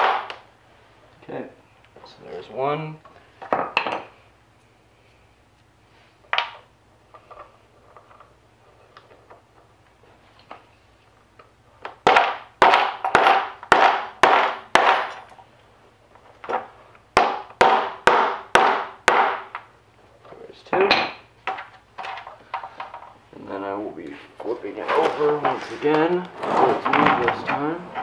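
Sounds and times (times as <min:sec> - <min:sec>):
tool handling: 0:20.3 - 0:23.2, 0:24.0 - 0:28.0.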